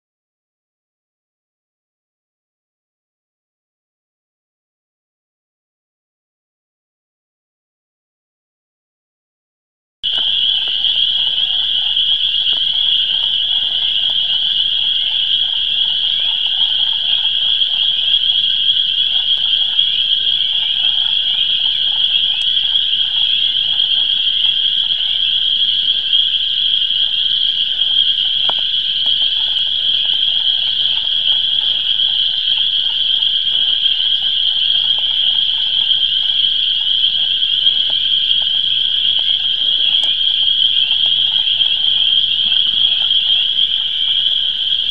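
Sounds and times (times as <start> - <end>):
high-pitched frog calls: 10.0 - 44.9
lower frog calls: 10.0 - 44.9.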